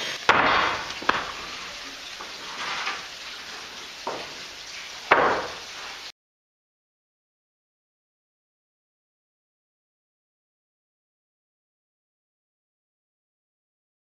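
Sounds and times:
wooden boards knocking: 0.3s - 1.5s, 4.0s - 4.4s, 5.1s - 5.6s.

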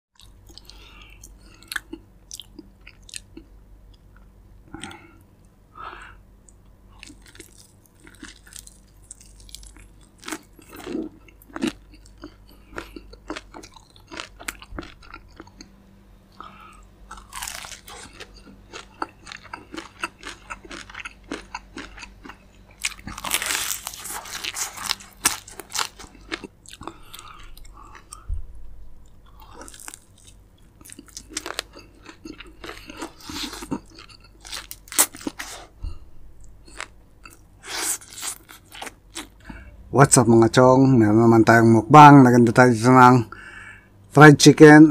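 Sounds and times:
fried chicken crunching: 7.0s - 15.6s, 16.4s - 28.2s, 29.3s - 35.7s, 36.4s - 39.4s.

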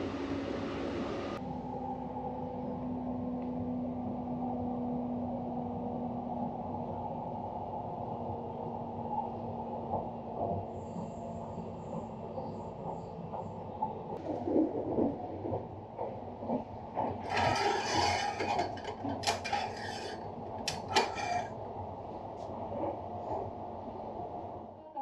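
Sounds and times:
train running rumble: 0.0s - 24.8s.

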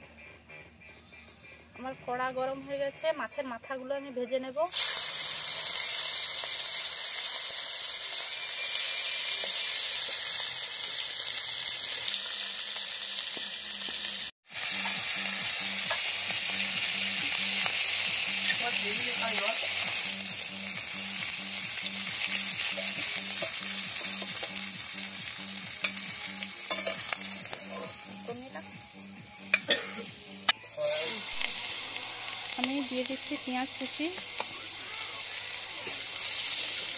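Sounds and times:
fish frying in hot oil: 4.7s - 27.6s, 30.7s - 36.9s.

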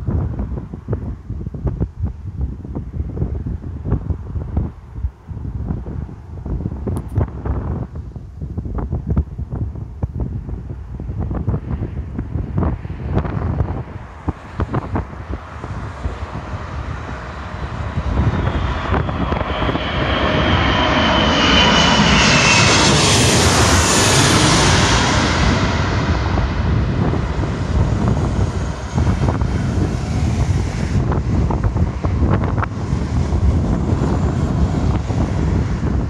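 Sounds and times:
jet engines of landing airliner: 0.0s - 36.0s
wind buffeting microphone: 0.0s - 36.0s.

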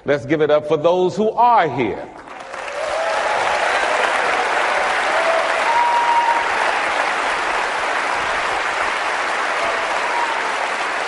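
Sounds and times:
large audience applauding: 2.2s - 11.0s.

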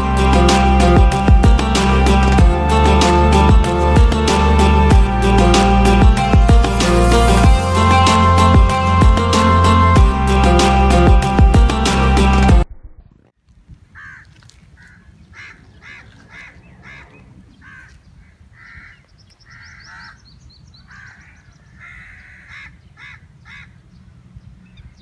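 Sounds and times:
background music: 0.0s - 12.7s
crows cawing: 14.0s - 20.2s, 20.8s - 23.8s.

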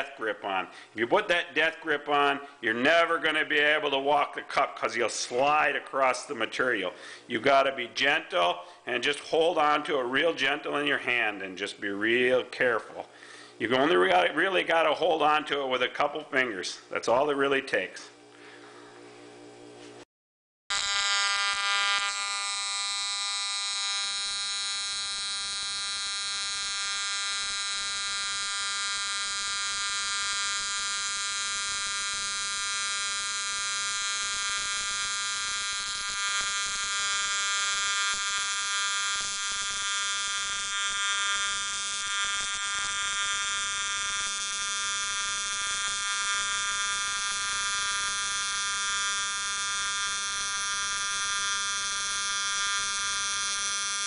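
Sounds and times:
welding arc buzzing: 20.7s - 54.0s.

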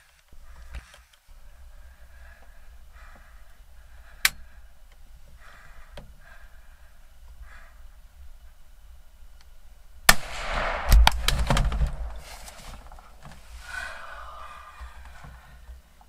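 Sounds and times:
rifle shot with echoes: 10.1s - 12.2s.

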